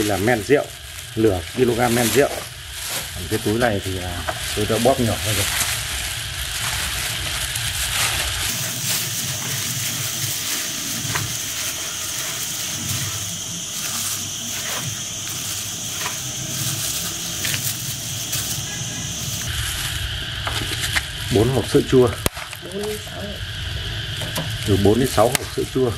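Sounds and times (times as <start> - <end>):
plastic bags crinkling: 0.0 - 20.0
crackly hiss: 0.0 - 25.9
steady high tone: 8.5 - 20.4.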